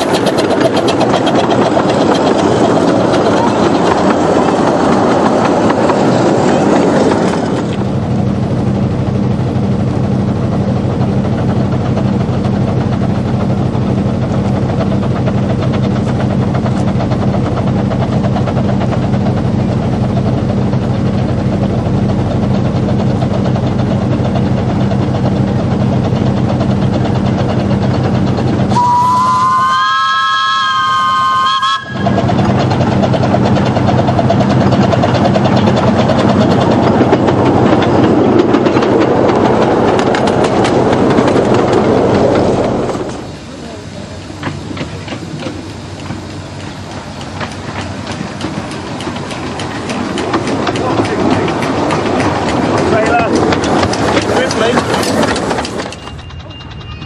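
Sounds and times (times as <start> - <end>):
steam train rumbling past: 0.0 - 57.0
steam whistle: 28.7 - 32.2.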